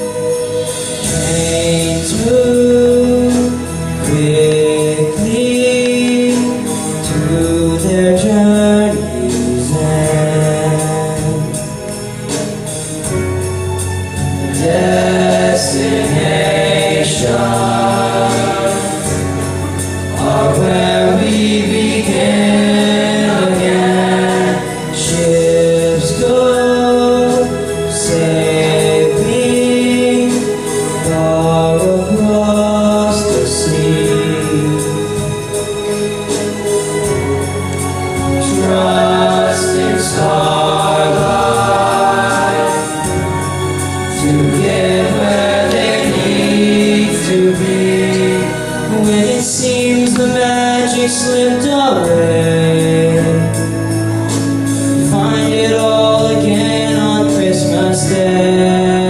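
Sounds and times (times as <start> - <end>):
boy singing into microphone: 0.0 - 11.9, 55.0 - 59.0
musical accompaniment: 0.0 - 59.0.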